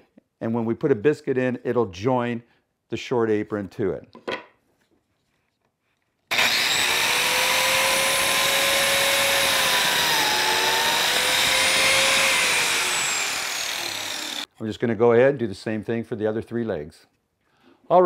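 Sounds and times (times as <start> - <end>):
biscuit joiner motor whine: 6.3 - 14.5.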